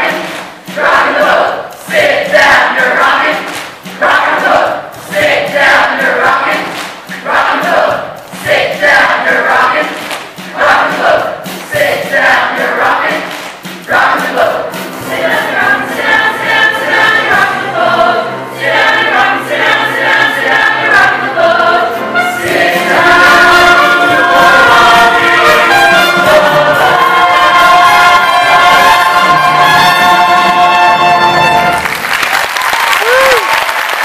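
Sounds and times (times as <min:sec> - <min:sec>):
chorus singing show tune: 0:00.0 - 0:31.8
pit orchestra with trumpets: 0:14.0 - 0:32.2.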